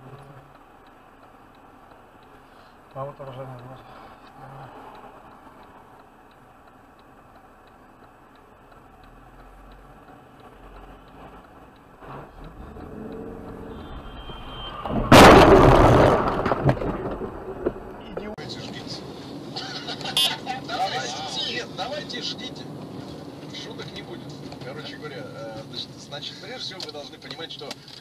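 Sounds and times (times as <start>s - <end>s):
steady light ticking: 0.0s - 14.8s
road noise inside car: 0.0s - 28.0s
brief high squeal: 13.8s - 15.0s
car crash impact crunching: 14.7s - 18.0s.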